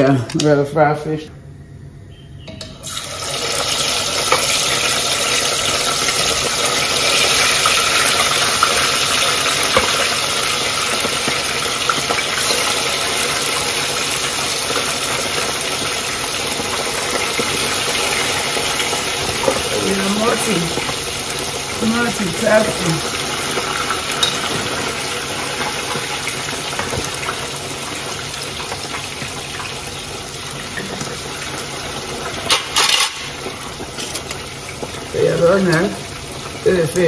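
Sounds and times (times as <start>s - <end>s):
fish sizzling in hot oil: 2.8s - 37.0s
oil popping and crackling: 2.8s - 37.0s.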